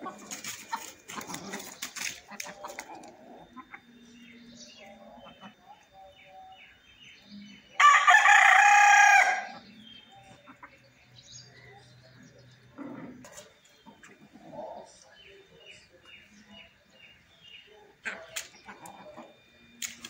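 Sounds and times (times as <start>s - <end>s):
rooster crowing: 7.7s - 9.6s.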